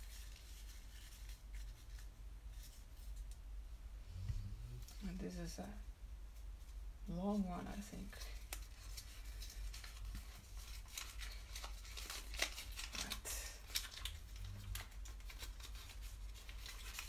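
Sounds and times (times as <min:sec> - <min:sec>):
steady low hum: 0:01.5 - 0:09.9
small clicks and rustles: 0:07.8 - 0:17.0.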